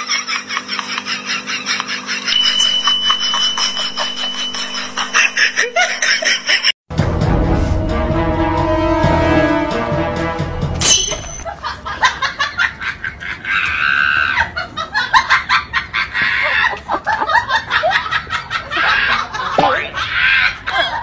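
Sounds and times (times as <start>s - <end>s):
bursts of laughter: 11.4s - 21.0s.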